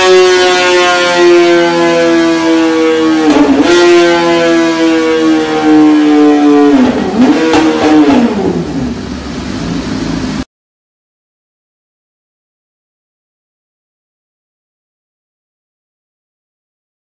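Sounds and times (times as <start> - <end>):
motorcycle engine revving: 0.0 - 10.4.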